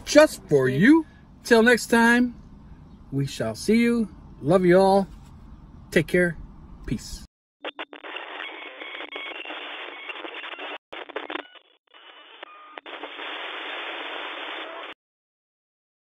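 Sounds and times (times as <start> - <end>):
static hiss with crackles: 12.0 - 15.0.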